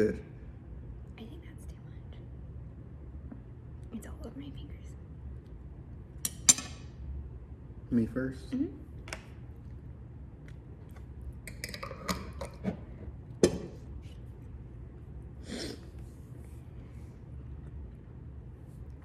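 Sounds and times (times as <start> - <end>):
low room hum: 0.0 - 19.0.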